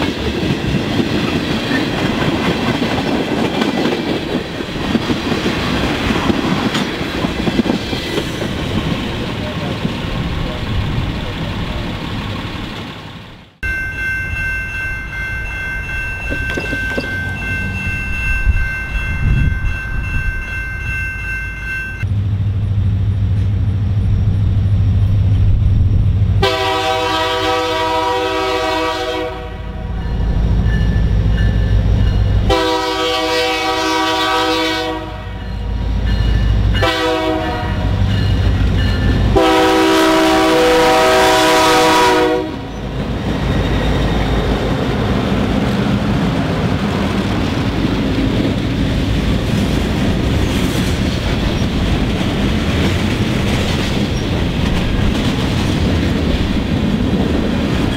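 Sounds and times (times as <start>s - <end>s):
diesel locomotive engine running: 0.0s - 57.9s
freight car wheels rumbling on rail: 0.0s - 57.9s
multi-chime train horn: 26.4s - 30.3s, 32.4s - 42.8s.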